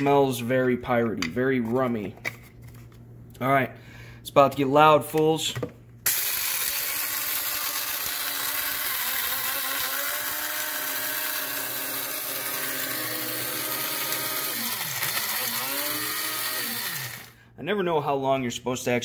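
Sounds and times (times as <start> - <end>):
electric coffee grinder whining: 6.1 - 17.4.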